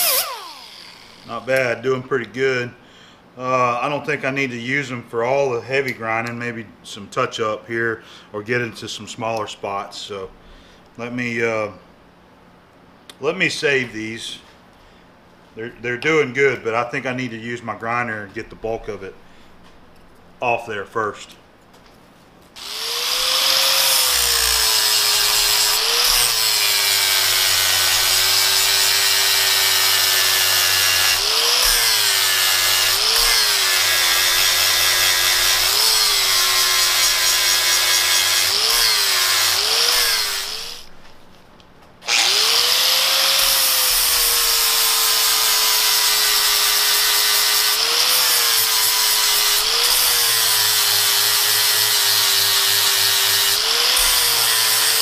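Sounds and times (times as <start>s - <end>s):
angle grinder grinding metal: 0.0s - 1.6s, 22.6s - 40.9s, 42.0s - 55.0s.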